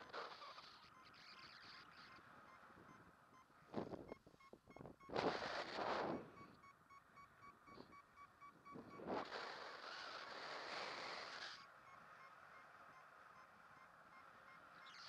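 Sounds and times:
variometer beeping in short pips: 0.0 - 9.3.

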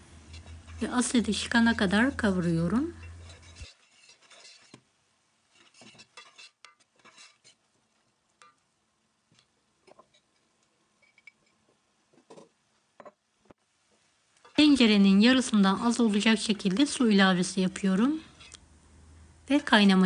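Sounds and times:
metal spoon scraping a pot: 0.2 - 4.9, 5.5 - 8.6, 9.8 - 11.7, 18.2 - 18.6.

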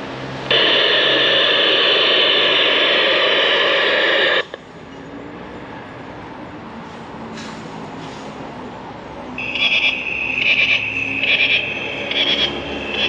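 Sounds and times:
loud steady hiss: 0.4 - 4.6.

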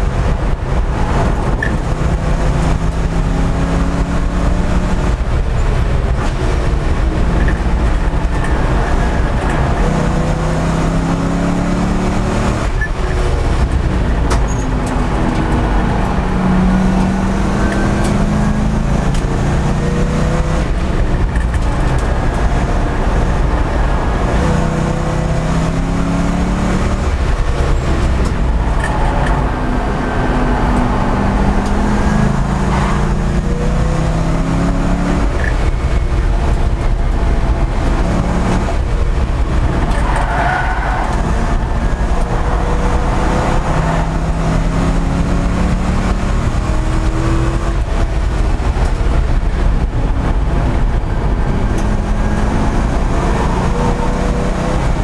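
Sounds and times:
race car engine revving: 0.0 - 55.0
road and wind noise: 0.0 - 55.0.

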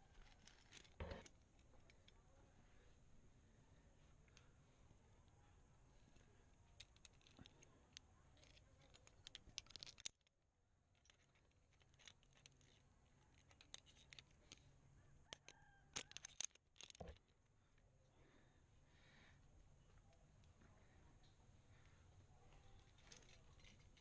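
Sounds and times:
carabiners clicking on steel cable: 0.0 - 2.1, 6.7 - 14.7, 15.3 - 17.3, 22.6 - 24.0.

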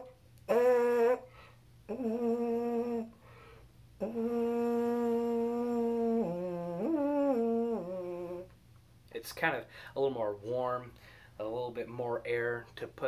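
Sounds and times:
trombone mouthpiece buzzing: 0.0 - 3.2, 4.0 - 8.5.

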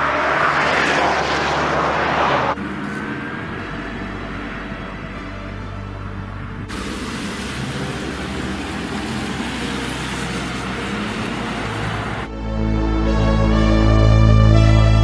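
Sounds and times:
car tyre and road noise: 0.0 - 12.3
keyboard music: 12.3 - 15.0.

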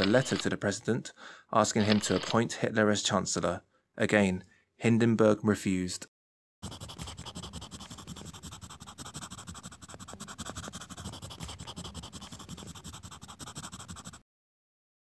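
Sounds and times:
pen scratching on paper: 6.6 - 14.2.

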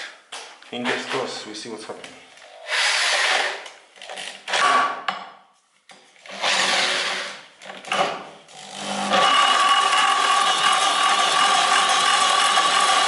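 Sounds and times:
cordless drill cranking engine: 6.3 - 13.0.

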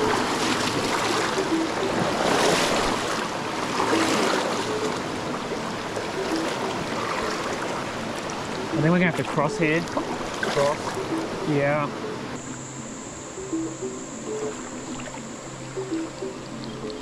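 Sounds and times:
legs wading through water: 0.0 - 11.4
creek water rushing over rocks: 0.0 - 11.9.

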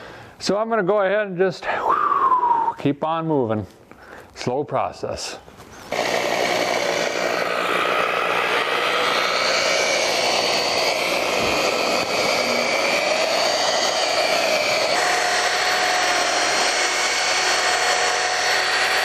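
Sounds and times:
electric polisher motor whine: 5.9 - 19.0.

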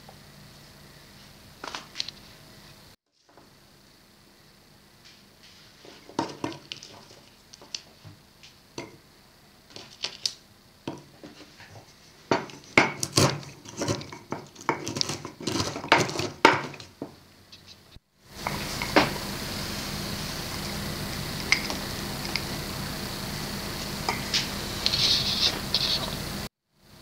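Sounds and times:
wooden pestle pounding: 12.3 - 17.1.

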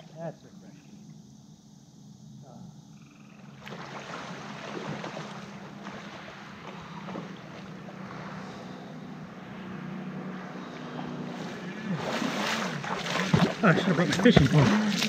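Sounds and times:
distant motorboat drone: 0.0 - 15.0
water lapping and splashing: 3.6 - 15.0.

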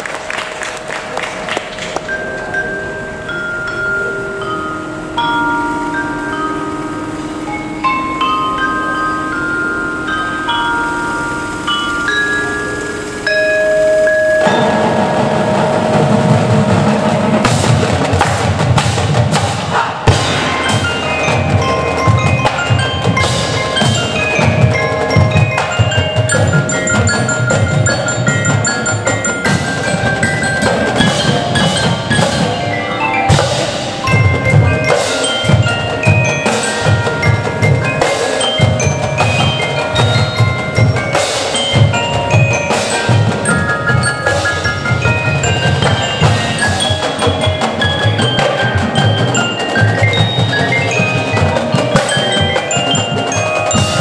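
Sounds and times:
mallet keyboards melody: 0.0 - 54.0
marching drumline drumming: 14.1 - 54.0.

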